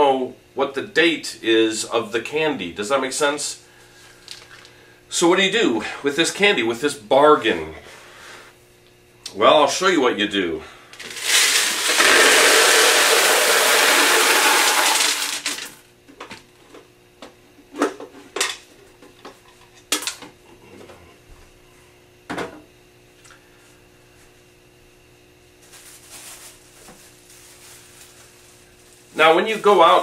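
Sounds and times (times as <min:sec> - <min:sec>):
candies pouring from plastic canister: 0:11.0 - 0:15.7
plastic rustle: 0:25.6 - 0:30.0.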